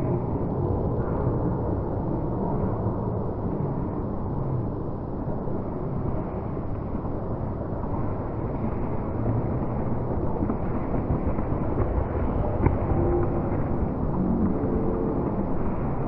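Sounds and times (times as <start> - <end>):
muffled sports hall rumble: 0.0 - 16.0.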